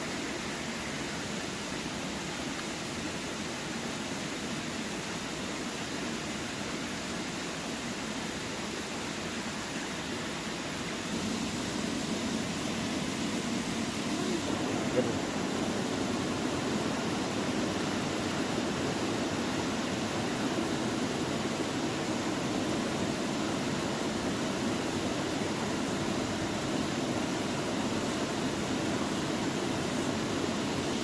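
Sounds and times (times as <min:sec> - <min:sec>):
steady rushing noise: 0:06.6 - 0:31.0.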